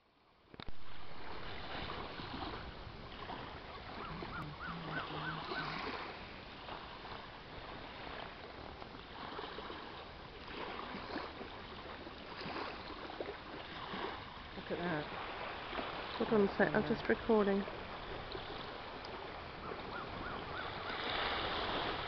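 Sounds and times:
water lapping at shore: 0.0 - 22.0
wind rumbling on microphone: 0.5 - 22.0.

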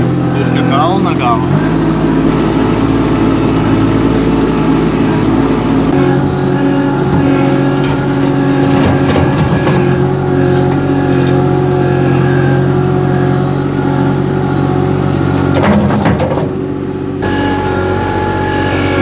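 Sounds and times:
mini loader engine running: 0.0 - 19.0
machine knocks and rattles: 7.0 - 10.8, 15.4 - 16.7.

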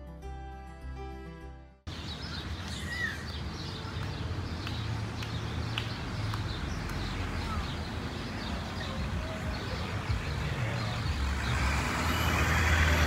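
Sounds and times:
vehicle engine rumbling: 3.3 - 13.0.

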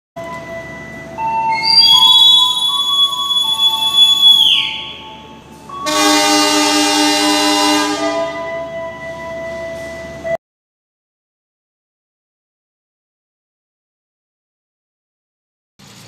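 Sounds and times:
locomotive horn: 0.2 - 10.4
guard's whistle: 1.5 - 5.2.

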